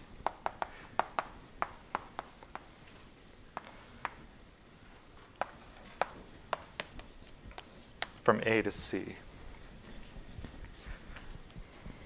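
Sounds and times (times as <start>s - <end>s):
chalk tapping and scraping on chalkboard: 0.0s - 8.2s.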